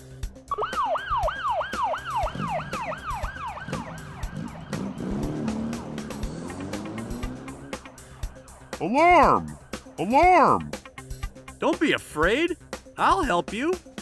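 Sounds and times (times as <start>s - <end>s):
police siren yelping: 0.5s - 10.8s.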